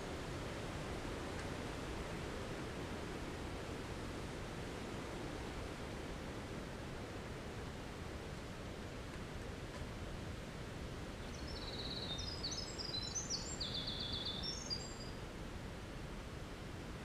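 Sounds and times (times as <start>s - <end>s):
low background noise: 0.0s - 17.0s
wren singing trills: 11.2s - 15.2s.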